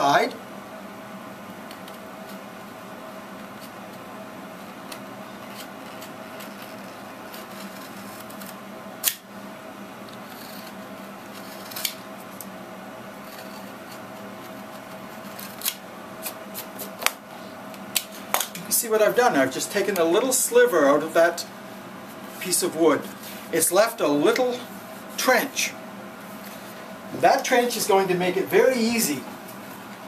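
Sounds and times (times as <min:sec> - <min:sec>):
faint steady hum: 0:00.0 - 0:30.0
knife scraping and slicing wood: 0:05.4 - 0:09.2, 0:10.2 - 0:12.0.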